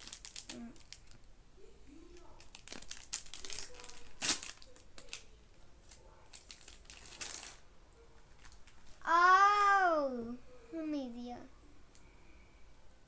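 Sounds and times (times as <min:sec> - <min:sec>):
plastic wrapping crinkling and tearing: 0:00.0 - 0:01.3, 0:02.1 - 0:07.6, 0:08.2 - 0:09.0
child's drawn-out vocal sound: 0:09.0 - 0:10.9.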